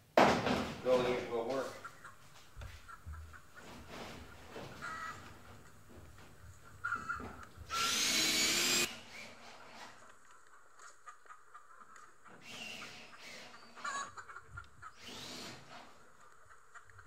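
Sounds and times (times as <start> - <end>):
chicken clucking: 0.9 - 7.7, 10.0 - 12.4, 13.0 - 15.0, 15.8 - 17.0
cordless drill driving a screw: 7.7 - 9.8, 12.4 - 13.7, 15.0 - 15.9.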